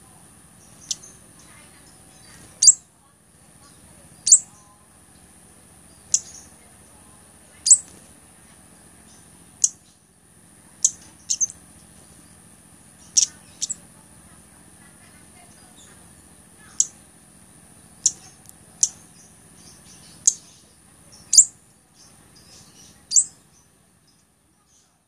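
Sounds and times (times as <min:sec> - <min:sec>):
faint high-pitched hum: 0:00.0 - 0:25.0
bird giving high call notes: 0:04.2 - 0:04.6, 0:13.0 - 0:13.8.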